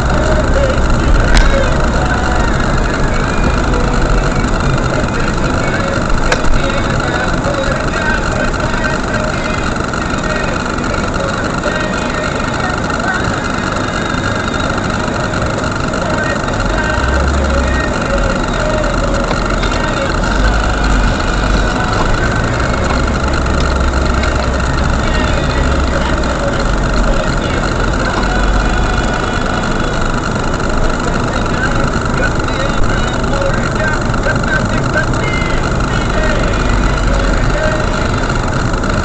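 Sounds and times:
car engine running: 0.0 - 39.0.

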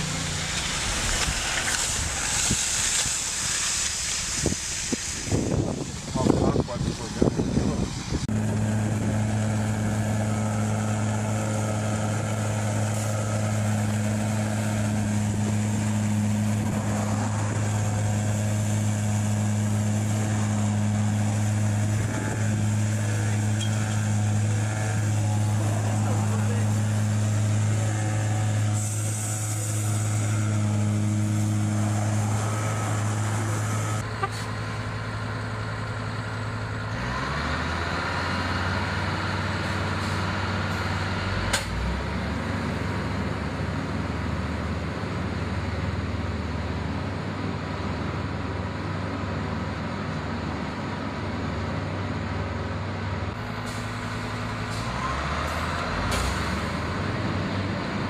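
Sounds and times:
heavy truck engine running: 0.0 - 58.0
hand lance hissing and spraying: 0.2 - 6.1, 25.0 - 34.0.

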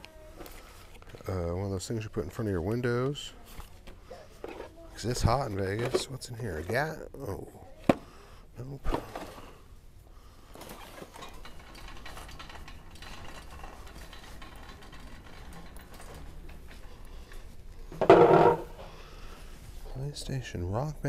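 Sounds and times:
shopping cart rolling on concrete: 10.6 - 17.5
cart basket rattling: 10.8 - 16.8.

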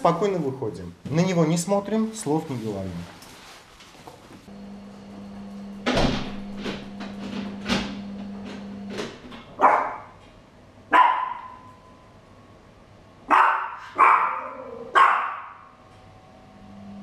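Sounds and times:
door shutting: 5.6 - 9.6
small dog barking: 9.6 - 10.2, 10.9 - 11.7, 13.3 - 15.7.

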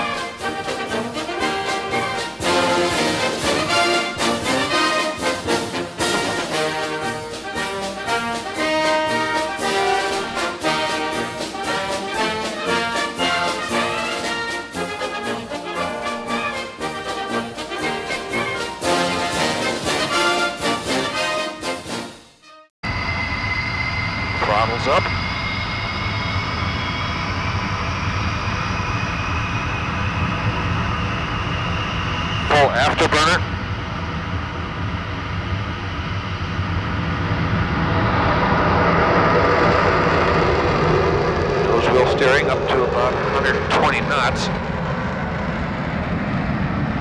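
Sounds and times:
high turbine whine: 0.0 - 21.4, 22.8 - 47.0
orchestral brass music: 0.0 - 22.7
jet engines low rumble: 0.0 - 47.0.

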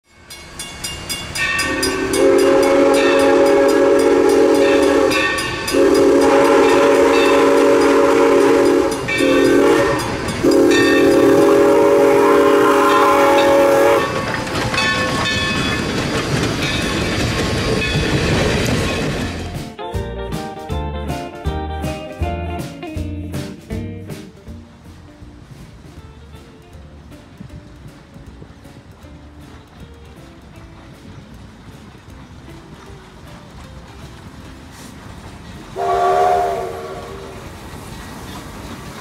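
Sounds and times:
steam locomotive chime whistle: 0.0 - 15.8, 35.6 - 37.6
crossing bell dinging: 0.0 - 20.3
locomotive rumbling past: 0.1 - 39.0.

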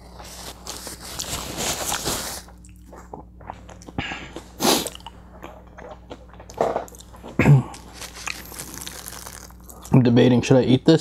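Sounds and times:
paper napkin rustling: 0.0 - 2.6, 7.9 - 9.6.

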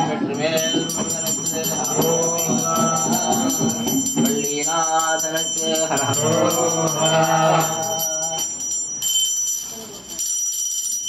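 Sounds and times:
voices singing: 0.0 - 8.6
hand bell rung rapidly: 0.0 - 11.0.

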